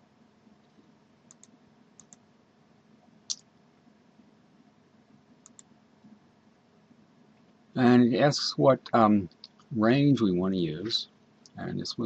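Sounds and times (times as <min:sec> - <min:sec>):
faint room hiss: 0:00.0 - 0:12.0
computer mouse clicks: 0:00.6 - 0:02.2, 0:05.4 - 0:05.7.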